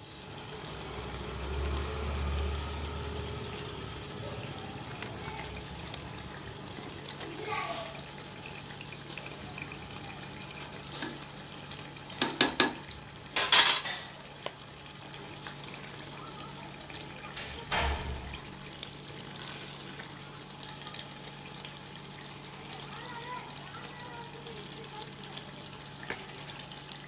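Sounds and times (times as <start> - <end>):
fish sizzling in a pot: 0.0 - 27.0
metal spoon knocking on pot: 12.2 - 12.8.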